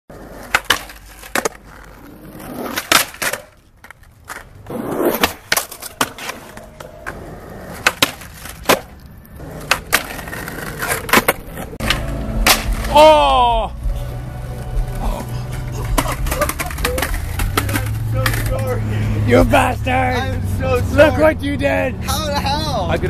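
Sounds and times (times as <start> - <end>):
skateboard clacks popping and landing: 0.1 - 13.0, 15.5 - 18.6
skateboard wheels rolling on concrete: 0.1 - 23.0.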